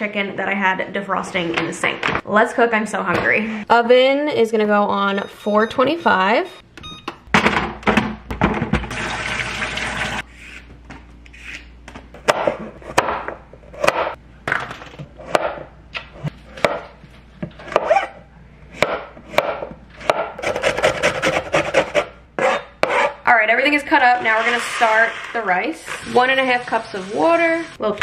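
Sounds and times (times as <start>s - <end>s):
tap water running: 8.8s - 10.2s.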